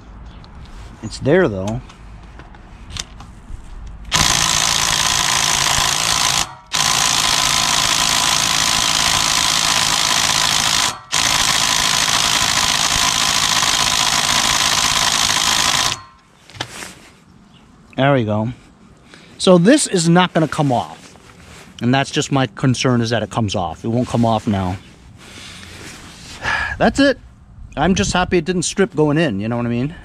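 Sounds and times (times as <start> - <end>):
impact wrench hammering: 4.1 - 16.2.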